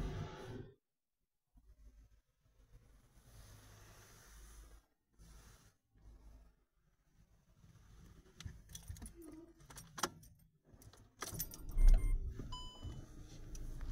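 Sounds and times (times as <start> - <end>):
light metallic clicks and jingling: 8.7 - 12.1.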